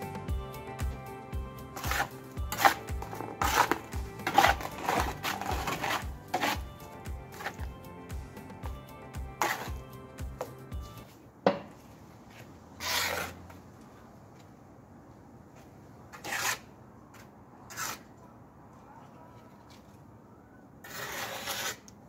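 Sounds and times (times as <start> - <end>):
trowel scraping mortar on stone: 1.6 - 7.7, 9.3 - 10.0, 12.3 - 13.6, 16.1 - 18.2, 20.8 - 22.0.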